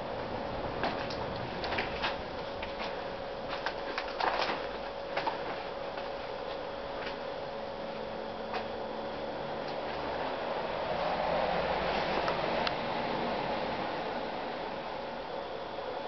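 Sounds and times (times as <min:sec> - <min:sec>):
footsteps on debris: 0:00.8 - 0:07.2.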